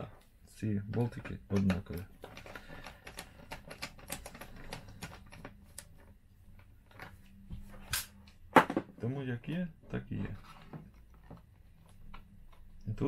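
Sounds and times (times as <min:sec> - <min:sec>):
light clicks and taps of plastic parts: 0:00.2 - 0:07.4.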